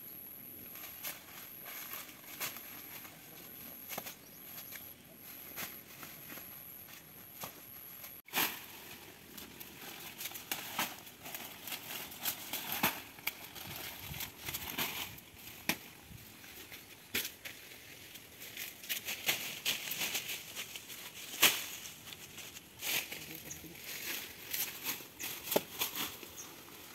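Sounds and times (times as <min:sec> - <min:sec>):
dry leaves rustling and crackling: 0:00.7 - 0:26.9
sharp snaps of stalks: 0:10.1 - 0:13.5, 0:14.6 - 0:16.0, 0:21.3 - 0:21.9, 0:24.5 - 0:26.3.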